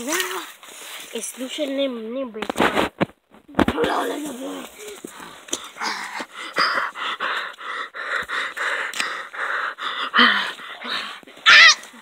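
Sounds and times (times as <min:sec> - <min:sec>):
person breathing hard: 0:04.7 - 0:11.4.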